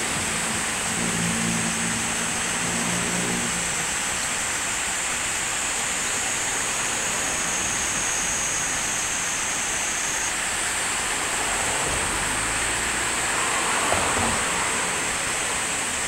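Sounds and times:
water rushing over a weir: 0.0 - 16.0.

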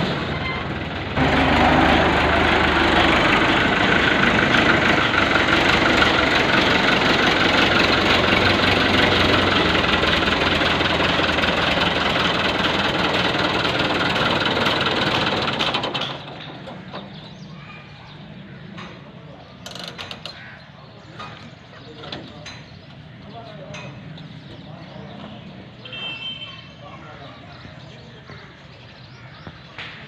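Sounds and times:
tractor diesel engine running: 0.0 - 20.6.

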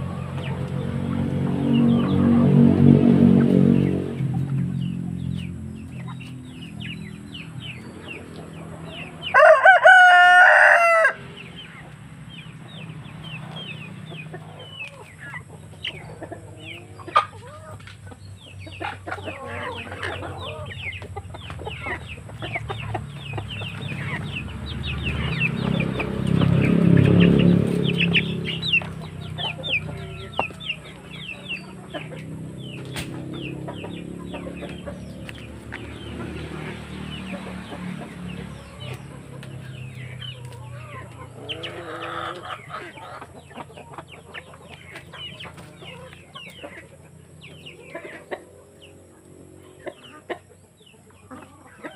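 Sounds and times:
chickens clucking: 0.0 - 51.9
rooster crowing: 9.2 - 11.2, 29.4 - 31.1.

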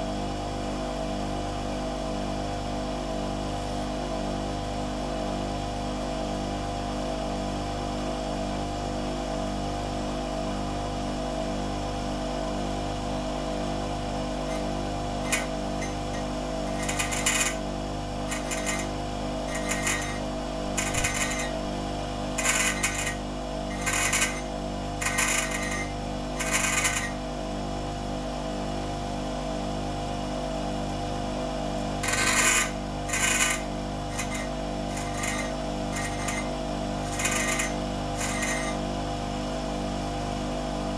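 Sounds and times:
bench grinder motor running: 14.2 - 27.4, 31.8 - 39.0
metal grinding on wheel: 14.4 - 21.7, 22.4 - 27.2, 32.0 - 38.8.

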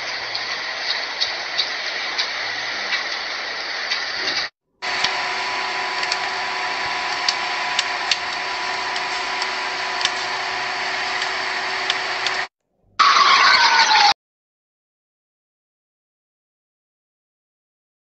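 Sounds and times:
heavy rain hissing: 0.0 - 12.5
steady hum: 4.8 - 12.5.

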